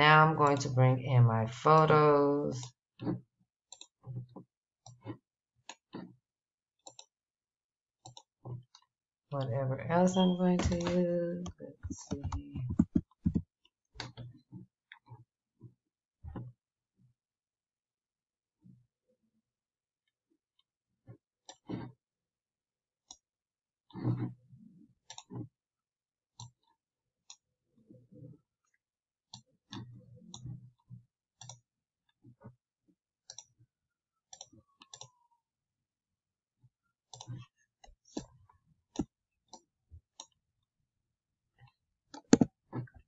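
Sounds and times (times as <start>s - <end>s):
computer mouse clicking: 6.8s - 7.1s, 10.6s - 13.4s, 42.1s - 42.5s.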